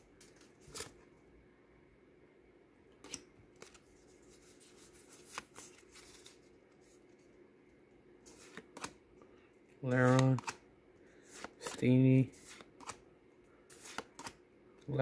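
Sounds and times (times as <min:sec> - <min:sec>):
trading cards flicking: 0:09.9 - 0:10.6, 0:11.3 - 0:13.0, 0:13.7 - 0:14.4.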